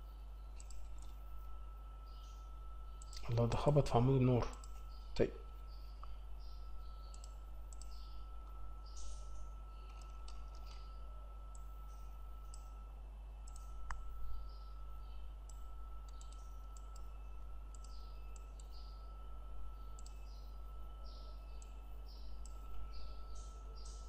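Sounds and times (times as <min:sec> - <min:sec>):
faint high whine: 0:00.0 - 0:24.0
low electrical hum: 0:00.0 - 0:24.0
computer mouse clicking: 0:00.5 - 0:01.2, 0:03.0 - 0:03.4, 0:04.4 - 0:05.0, 0:07.0 - 0:08.1, 0:09.8 - 0:10.9, 0:11.5 - 0:12.7, 0:13.4 - 0:14.1, 0:15.4 - 0:17.1, 0:17.7 - 0:18.9, 0:19.9 - 0:20.4.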